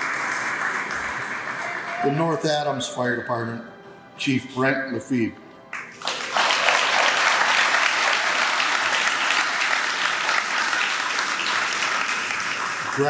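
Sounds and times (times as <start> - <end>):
audience applauding: 0.0 - 2.7, 5.7 - 13.0.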